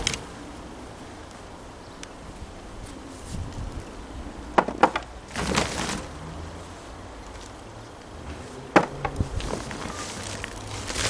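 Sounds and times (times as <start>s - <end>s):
sharp knocks: 4.6s - 5.1s
rustling scrape in potatoes: 9.3s - 11.0s.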